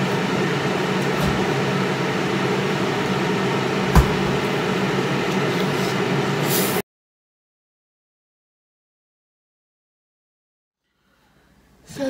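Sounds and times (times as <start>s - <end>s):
kitchen appliance humming: 0.0s - 6.8s.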